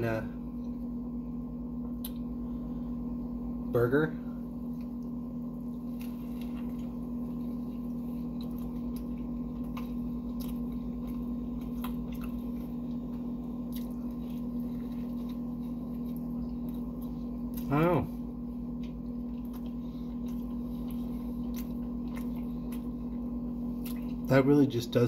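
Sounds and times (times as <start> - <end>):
low background hum: 0.0 - 25.0
biting and chewing: 4.8 - 17.9, 18.7 - 24.3.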